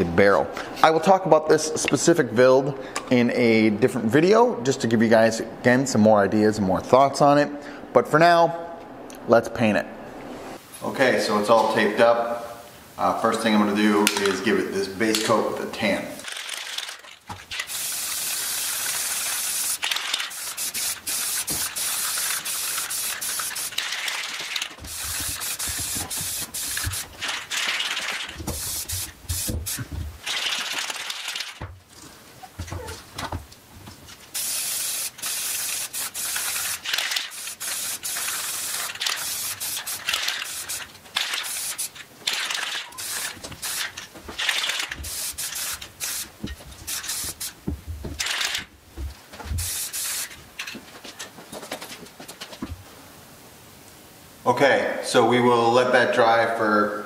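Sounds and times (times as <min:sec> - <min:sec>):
spray paint can hissing: 0:16.2 - 0:31.6, 0:34.3 - 0:47.6, 0:49.5 - 0:50.4.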